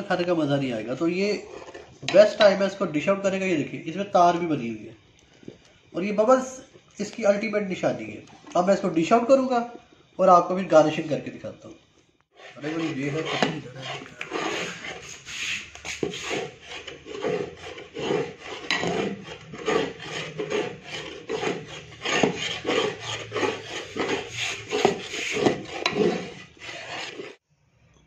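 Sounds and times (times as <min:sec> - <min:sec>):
metal ladle scraping a pot: 0:00.8 - 0:03.2, 0:12.4 - 0:27.4.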